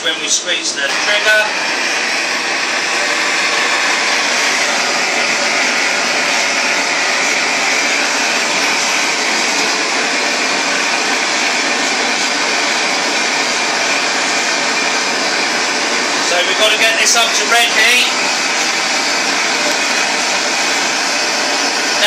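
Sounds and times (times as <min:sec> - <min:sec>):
gas torch hissing: 0:00.0 - 0:22.0.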